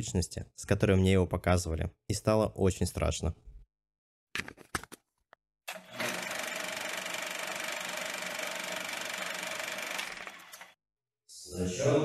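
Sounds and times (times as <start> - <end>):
fast mechanical whirr: 5.7 - 10.8.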